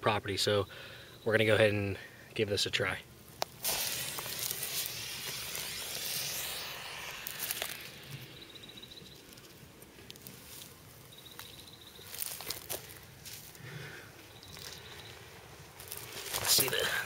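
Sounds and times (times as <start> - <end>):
smoke cartridge hissing: 3.4 - 10.7
faint high chirp: 7.5 - 9.5, 11.0 - 12.3, 14.3 - 15.3.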